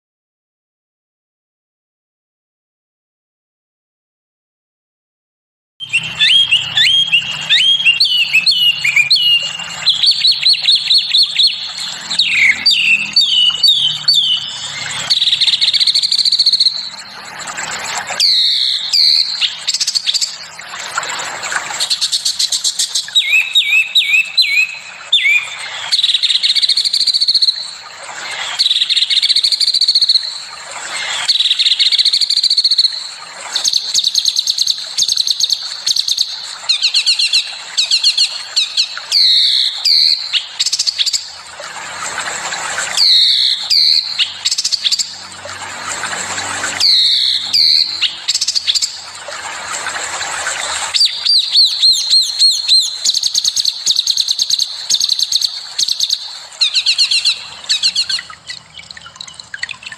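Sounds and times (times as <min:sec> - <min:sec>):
songbirds chirping: 0:05.8 - 0:29.5, 0:51.0 - 0:59.9.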